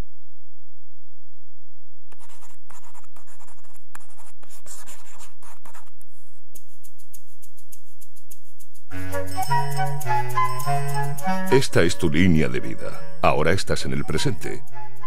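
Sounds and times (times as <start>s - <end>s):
marker pen scratching: 2.1s - 12.2s.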